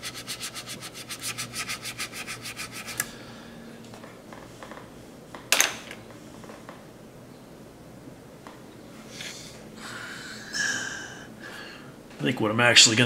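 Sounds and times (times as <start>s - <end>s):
stiff paintbrush scrubbing: 0.0s - 3.0s.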